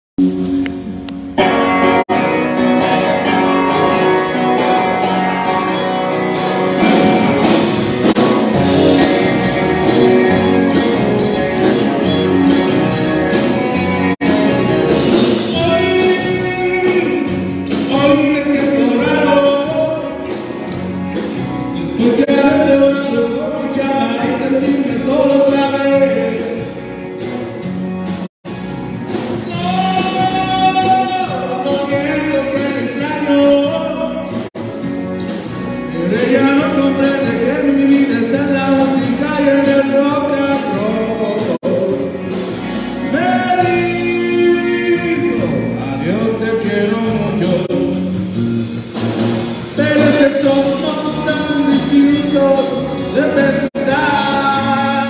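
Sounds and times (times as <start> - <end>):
bass guitar: 0.1 - 55.0
drums: 0.1 - 55.0
electric guitars: 0.2 - 55.0
person singing: 15.2 - 20.5, 21.6 - 26.8, 29.4 - 34.5, 35.8 - 48.2, 49.7 - 55.0.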